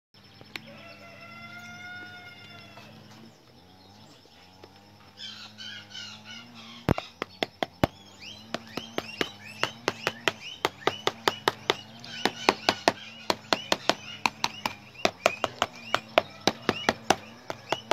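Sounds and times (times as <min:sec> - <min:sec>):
birds chirping: 0:00.2 - 0:17.9
held pitched call: 0:07.9 - 0:17.9
knife chopping on metal tray: 0:08.5 - 0:17.9.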